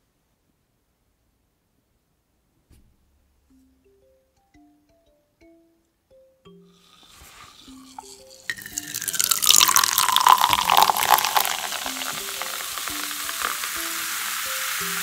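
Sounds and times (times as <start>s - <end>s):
soda fizzing: 6.9s - 15.0s
soda splashing into cup: 7.0s - 15.0s.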